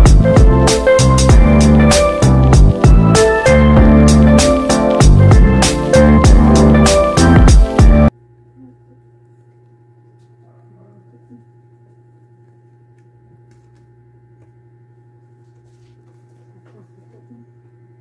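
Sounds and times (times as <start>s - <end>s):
low electrical hum: 8.1s - 18.0s.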